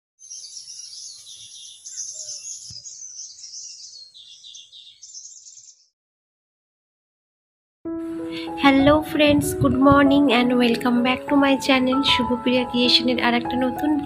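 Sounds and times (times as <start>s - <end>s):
birds chirping: 0.2s - 6.0s.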